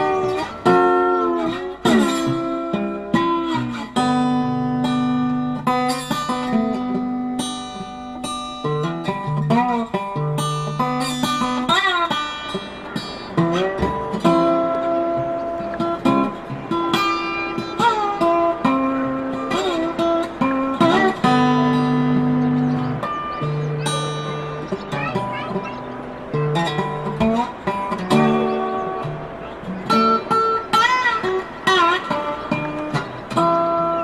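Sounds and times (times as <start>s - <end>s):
acoustic guitar melody: 0.0s - 34.0s.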